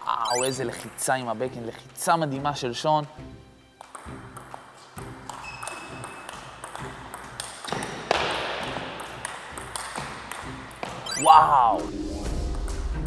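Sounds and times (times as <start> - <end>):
table tennis ball pinging: 3.8 - 4.6, 5.2 - 11.6.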